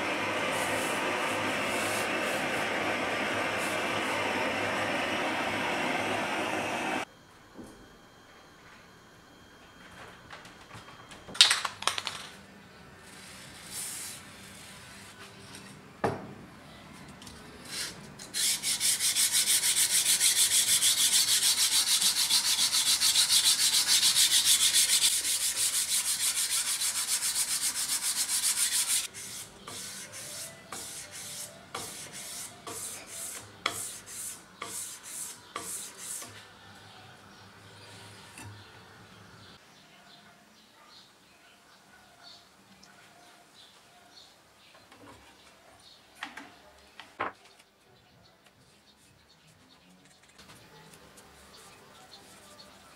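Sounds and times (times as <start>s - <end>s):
sandpaper rubbing on metal blade: 17.6s - 36.4s.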